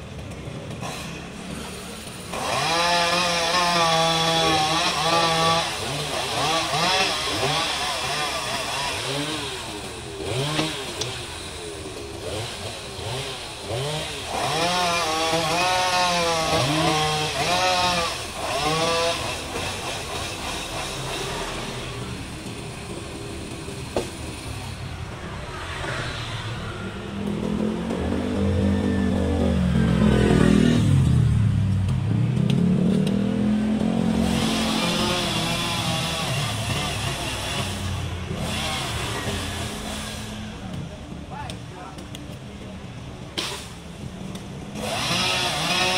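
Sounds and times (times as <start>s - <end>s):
chainsaw revving: 0.7s - 26.3s, 32.4s - 40.7s, 43.4s - 45.9s
vehicle engine passing by: 20.6s - 40.7s.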